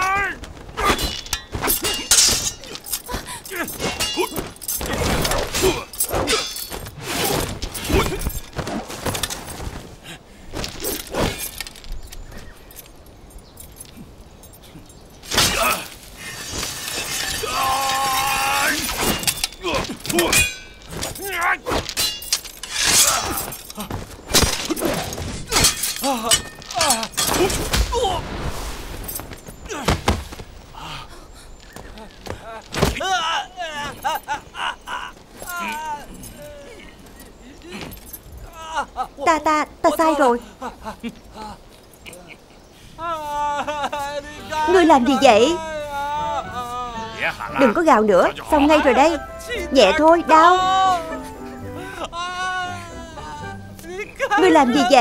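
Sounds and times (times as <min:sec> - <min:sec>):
fight blows swishes and crashes: 0:00.5 - 0:11.9, 0:15.2 - 0:30.7
things breaking: 0:15.2 - 0:30.6
short shouts and cries: 0:43.0 - 0:47.6, 0:48.4 - 0:55.0.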